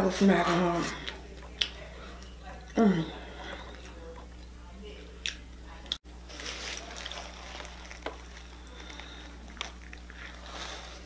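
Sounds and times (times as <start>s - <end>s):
low steady hum: 0.0s - 11.0s
crunchy chewing: 5.2s - 11.0s
foil wrapper crinkling: 6.2s - 11.0s.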